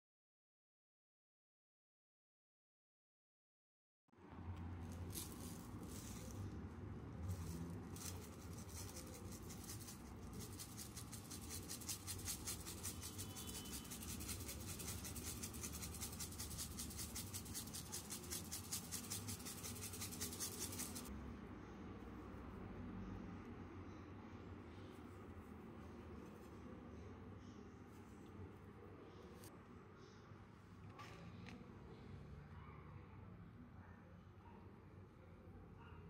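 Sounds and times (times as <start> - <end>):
pepper grinder grinding: 7.2 - 21.1.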